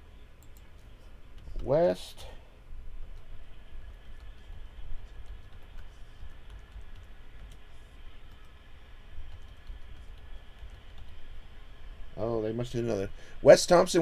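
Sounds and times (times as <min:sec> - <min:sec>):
low steady hum: 0:00.0 - 0:14.0
keyboard typing: 0:04.1 - 0:08.6, 0:09.2 - 0:11.3.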